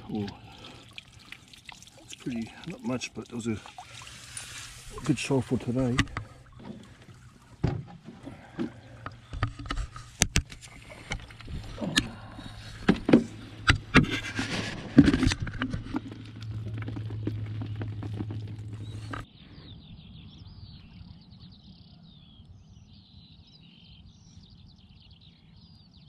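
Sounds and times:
net frame knocks and rustles: 6.0 - 8.9.

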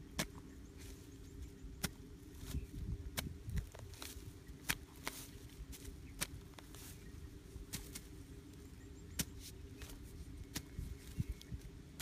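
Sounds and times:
digging tool striking soil: 0.1 - 0.4, 1.8 - 6.8, 7.6 - 8.2, 9.1 - 10.9
dirt scuffing: 1.8 - 8.6, 9.2 - 11.6.

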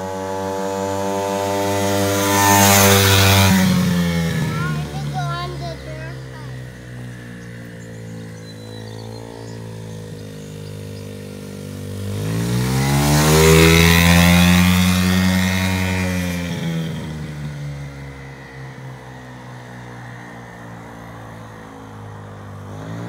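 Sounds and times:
dirt bike engine revving: 0.0 - 18.6, 22.5 - 23.0.

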